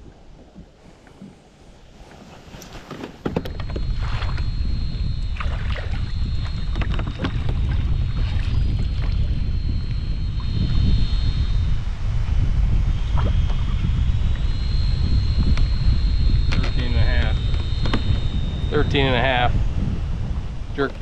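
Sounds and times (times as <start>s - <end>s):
faint high whine: 0.0s - 21.0s
low rumble with wind on microphone: 0.0s - 21.0s.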